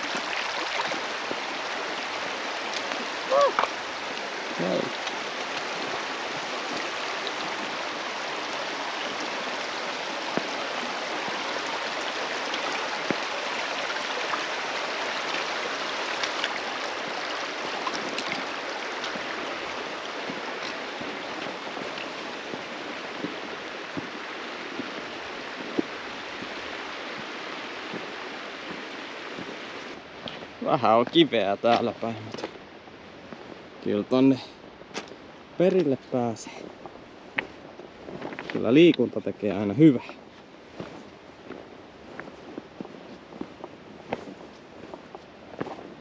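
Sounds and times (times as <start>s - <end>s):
stream water rushing: 0.0s - 46.0s
footsteps on rocks: 27.9s - 29.6s, 31.7s - 32.6s, 36.6s - 39.1s, 40.0s - 46.0s.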